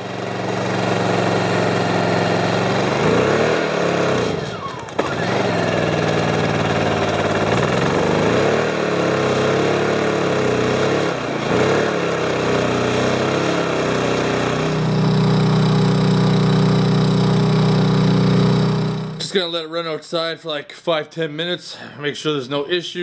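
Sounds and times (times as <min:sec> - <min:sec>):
generator engine running: 0:00.0 - 0:19.4.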